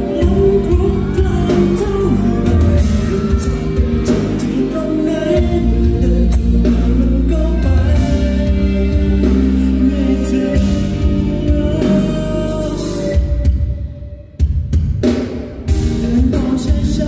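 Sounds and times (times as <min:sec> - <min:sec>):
man singing: 0:00.0 - 0:14.4, 0:15.7 - 0:17.0
live pop song over loudspeakers: 0:00.0 - 0:17.0.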